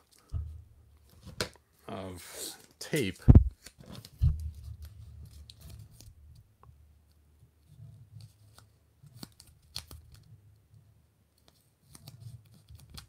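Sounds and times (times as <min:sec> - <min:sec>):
tape crinkling and crackling: 0:02.6 - 0:06.4, 0:08.2 - 0:10.3, 0:11.4 - 0:13.0.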